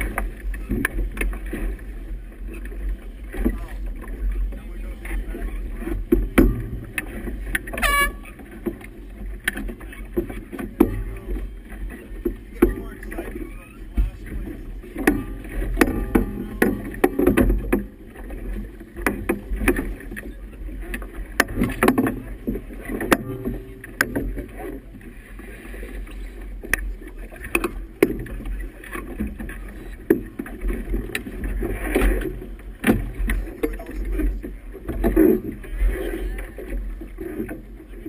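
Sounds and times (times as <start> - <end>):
steady low rumble: 0.0 - 38.0
water slapping against boat hull: 0.0 - 38.0
sharp knocks: 6.1 - 7.2, 15.0 - 17.9.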